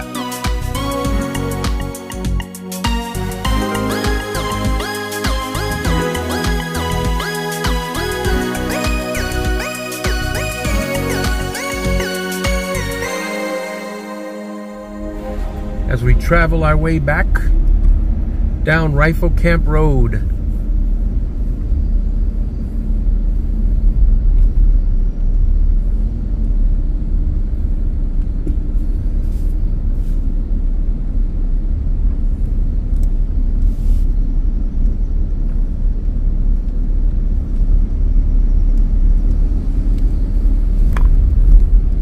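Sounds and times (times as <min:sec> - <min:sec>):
car engine and tyre rumble: 0:14.9 - 0:42.0.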